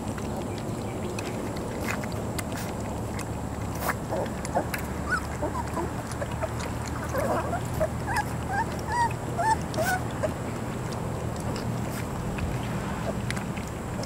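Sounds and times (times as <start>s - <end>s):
steady low hum: 0.0s - 14.0s
puppies squeaking and whimpering: 3.8s - 12.0s.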